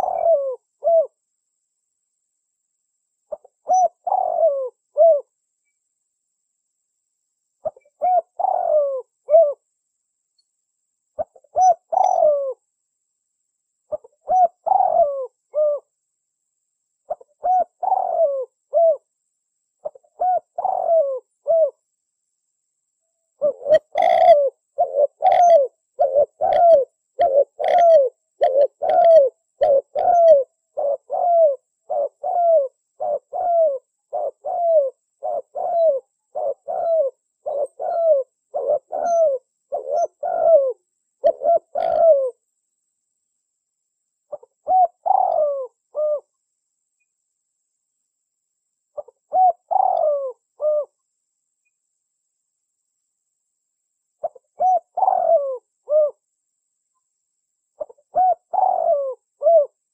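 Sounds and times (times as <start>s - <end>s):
dove cooing: 0.0s - 1.2s, 3.3s - 5.3s, 7.6s - 9.6s, 11.2s - 12.6s, 13.9s - 15.9s, 17.1s - 19.1s, 19.8s - 21.8s, 23.4s - 42.4s, 44.3s - 46.3s, 49.0s - 51.0s, 54.2s - 56.2s, 57.8s - 59.9s.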